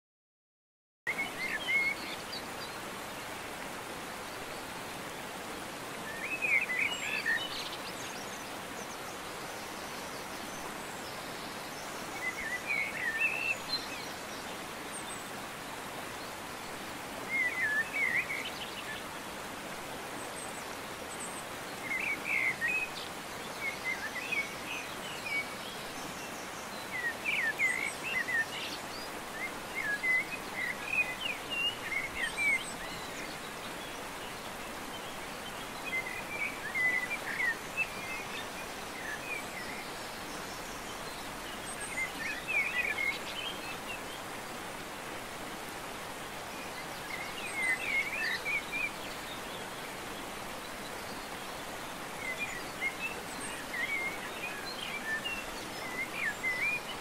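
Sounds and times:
steady background hiss: 0:01.1 - 0:57.0.

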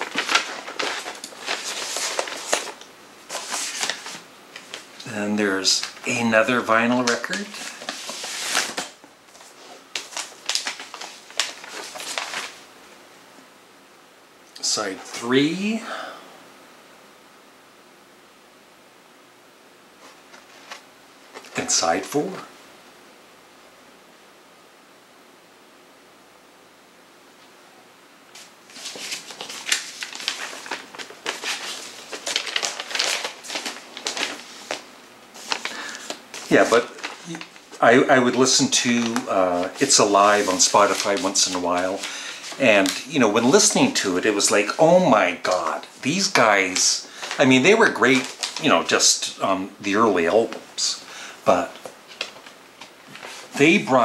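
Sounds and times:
record sleeve rustling: 0:00.0 - 0:06.2, 0:06.9 - 0:12.7, 0:20.0 - 0:22.0, 0:28.3 - 0:44.0, 0:45.4 - 0:49.0, 0:51.7 - 0:54.0.

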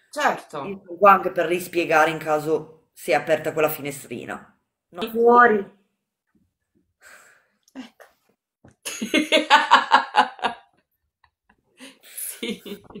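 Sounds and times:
woman laughing: 0:08.8 - 0:10.7, 0:11.8 - 0:13.0.

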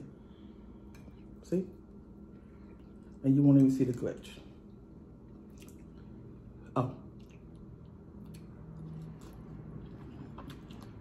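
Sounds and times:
wet chewing and slurping: 0:05.3 - 0:06.2, 0:07.1 - 0:11.0.

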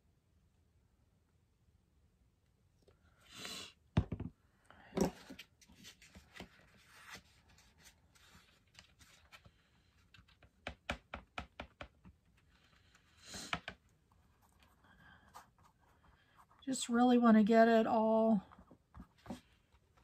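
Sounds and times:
paintbrush tapping and clicking: 0:10.4 - 0:12.3.

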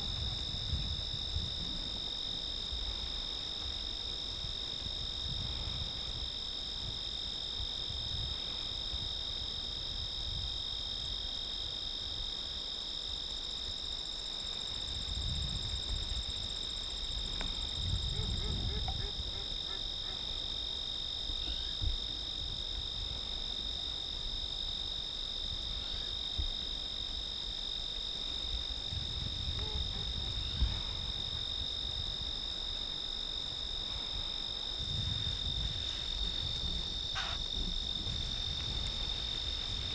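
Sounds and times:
insects shrilling: 0:32.6 - 0:39.9.

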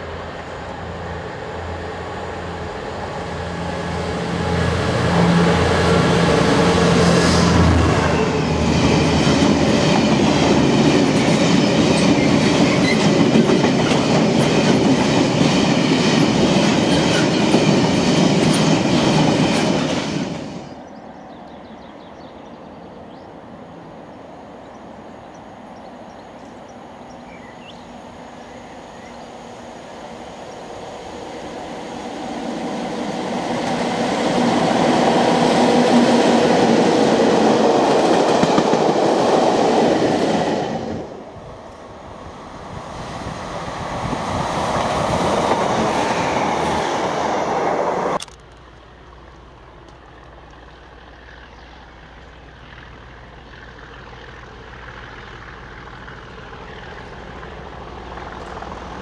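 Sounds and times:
diesel locomotive engine: 0:00.0 - 0:59.0
distant train rumble: 0:00.0 - 0:59.0
train wheels clattering over rail joints: 0:08.5 - 0:20.6.

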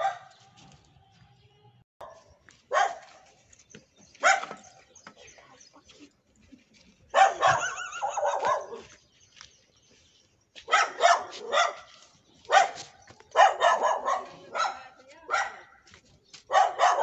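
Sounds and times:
dog barking: 0:00.0 - 0:00.4, 0:02.0 - 0:03.2, 0:04.2 - 0:04.6, 0:07.1 - 0:08.9, 0:10.7 - 0:15.8, 0:16.5 - 0:17.0.

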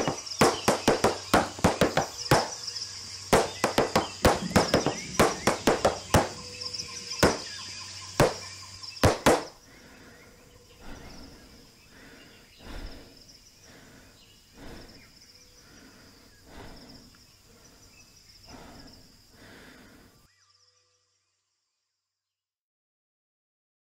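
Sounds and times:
tap shoes on wooden board: 0:00.0 - 0:02.5, 0:03.4 - 0:06.4.

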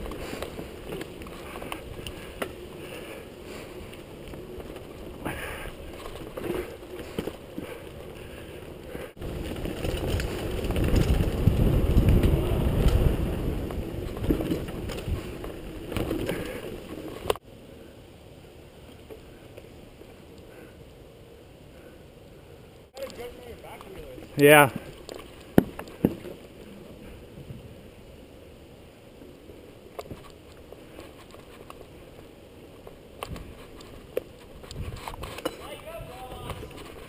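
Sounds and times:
tyre rumble: 0:00.0 - 0:17.3
bike clattering over bumps: 0:00.0 - 0:17.4, 0:23.1 - 0:26.5
wind rushing over microphone: 0:09.1 - 0:16.5, 0:34.6 - 0:37.0.

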